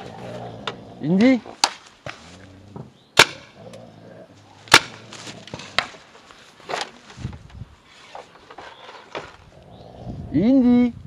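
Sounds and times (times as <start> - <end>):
paintball marker shots: 3.2 - 3.6.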